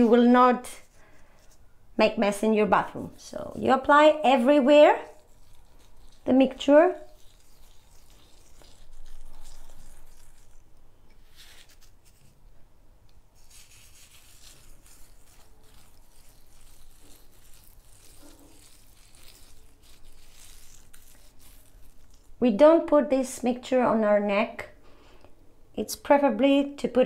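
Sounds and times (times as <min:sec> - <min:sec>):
fingertips rubbing gritty scrub on skin: 0:00.0 - 0:01.6, 0:02.8 - 0:12.4, 0:13.4 - 0:22.4.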